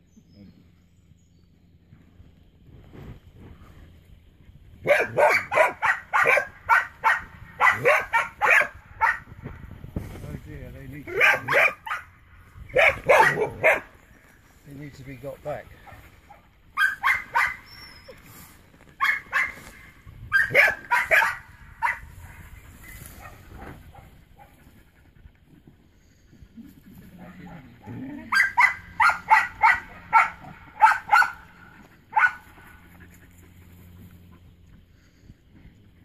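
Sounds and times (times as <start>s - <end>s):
dog barking in sharp yips: 4.8s - 9.3s, 11.1s - 12.1s, 12.7s - 13.9s, 16.8s - 18.1s, 19.0s - 22.0s, 28.3s - 31.5s, 32.1s - 32.4s.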